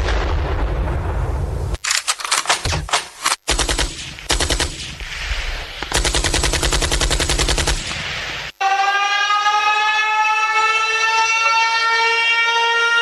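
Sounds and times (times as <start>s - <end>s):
automatic machine-gun fire: 1.9s - 5.1s, 5.9s - 8.0s
siren wailing: 8.6s - 13.0s.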